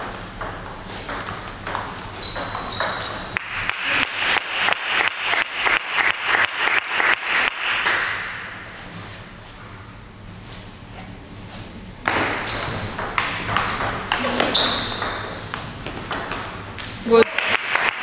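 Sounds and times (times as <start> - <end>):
table tennis ball bouncing: 0.0 - 5.4, 12.0 - 18.0
shoes squeaking on wooden floor: 0.8 - 3.4, 12.2 - 16.6.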